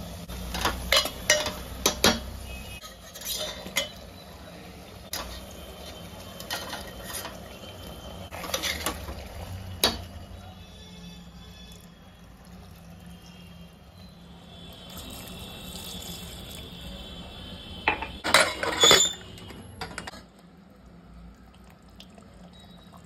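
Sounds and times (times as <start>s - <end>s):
metal lid clanking: 0.5s - 4.0s, 17.9s - 19.2s
water pouring into pot: 5.1s - 10.5s, 11.1s - 14.0s, 14.6s - 17.2s, 20.4s - 23.0s.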